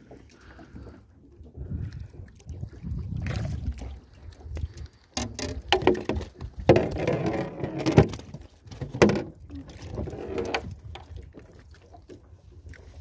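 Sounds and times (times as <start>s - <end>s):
fish flapping against metal boat: 5.2s - 10.7s.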